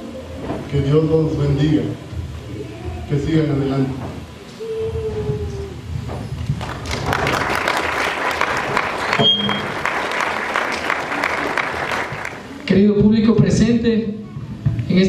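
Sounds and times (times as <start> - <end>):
audience applauding: 6.3 - 12.7.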